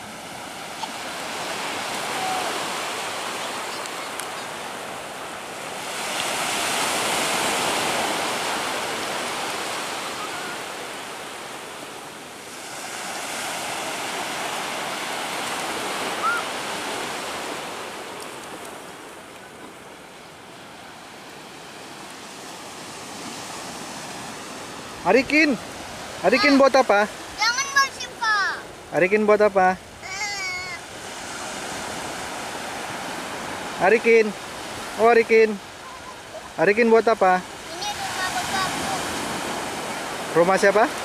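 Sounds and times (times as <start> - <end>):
sea waves breaking on beach: 0.0 - 41.0.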